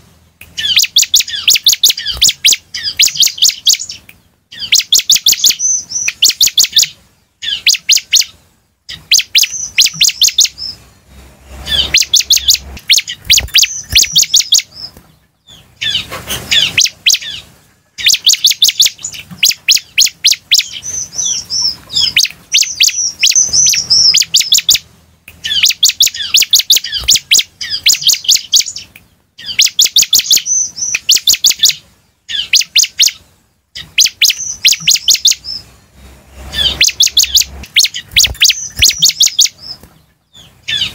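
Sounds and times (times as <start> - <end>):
bird chirping rapidly: 0.2 - 40.9
rustling: 10.7 - 17.6.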